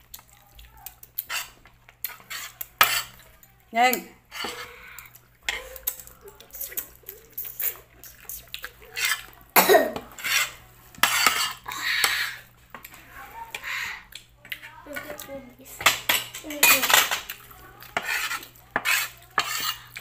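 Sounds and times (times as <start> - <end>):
chewing and lip smacks: 4.9 - 9.5, 14.0 - 14.6.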